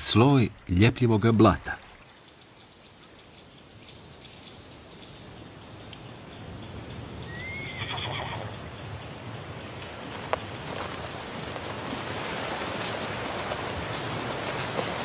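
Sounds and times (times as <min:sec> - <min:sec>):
horse whinnying: 0:07.3 - 0:08.5.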